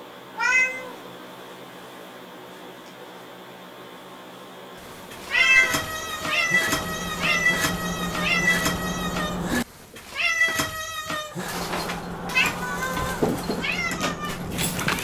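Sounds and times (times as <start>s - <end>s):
cat meowing: 0.4s - 1.0s, 5.3s - 11.4s, 12.3s - 14.5s.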